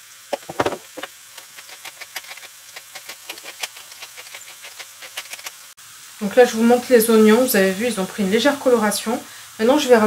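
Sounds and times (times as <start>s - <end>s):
salt being sprinkled: 0.0s - 10.0s
pepper mill grinding: 0.3s - 5.7s.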